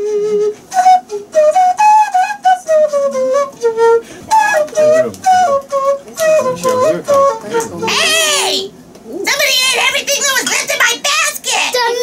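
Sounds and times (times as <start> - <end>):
flute-like tune: 0.0 - 8.7.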